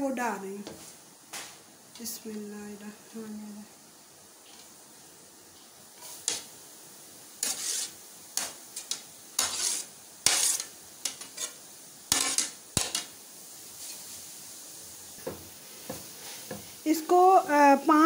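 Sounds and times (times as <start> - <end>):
metal spoon scraping a plate: 7.4 - 13.1.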